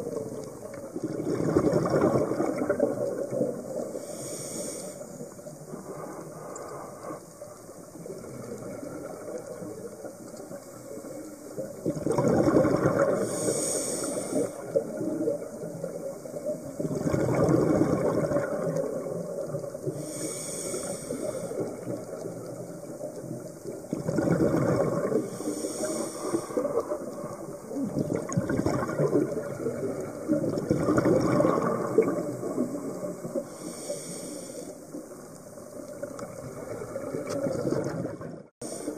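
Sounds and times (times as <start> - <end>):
underwater bubbles rushing: 0.0 - 38.9
regulator hiss: 3.7 - 7.9, 13.2 - 15.2, 19.8 - 23.8, 25.2 - 27.8, 32.6 - 35.3.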